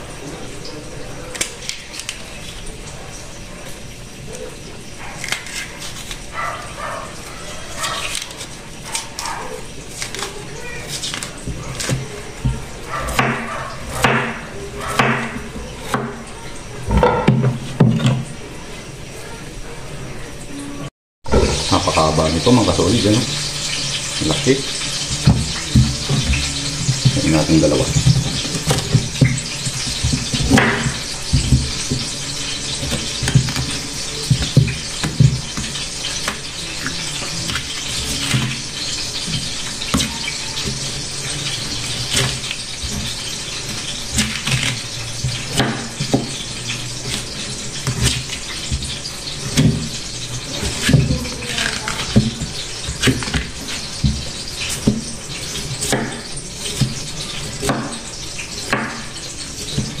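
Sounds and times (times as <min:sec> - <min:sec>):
knife scraping and cutting skin: 0:05.2 - 0:06.3, 0:07.7 - 0:12.1.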